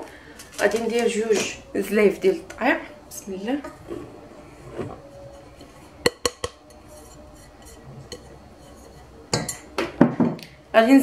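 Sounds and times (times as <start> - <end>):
metal bowls clinking: 3.6 - 9.8.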